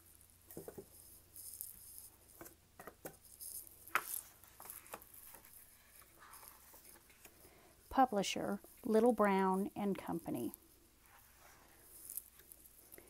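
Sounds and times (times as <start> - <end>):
faint rustles and taps: 0.5 - 1.1
book pages turning: 3.9 - 7.4.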